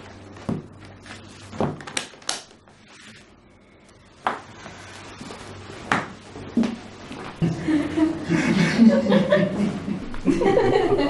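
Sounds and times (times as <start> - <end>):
faint steady hum: 0.0 - 11.0
papers and folder knocking on wood: 1.5 - 2.0.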